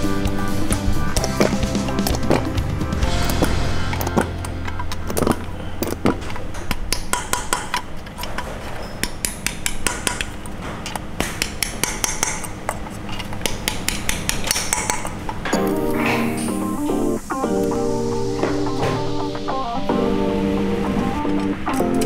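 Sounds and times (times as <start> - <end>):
small hammer tapping metal: 6.6 - 8.4, 9.0 - 15.6.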